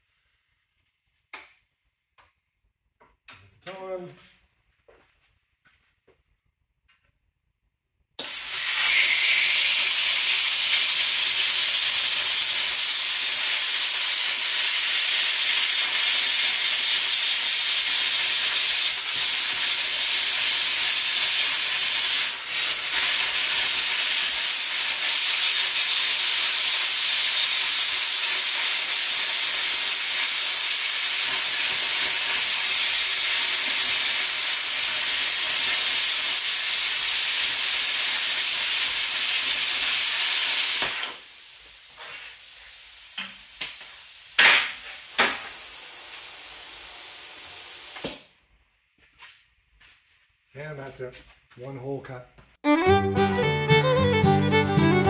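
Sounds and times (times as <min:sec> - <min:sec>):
plasma cutter arc hissing: 0:08.2 - 0:48.3.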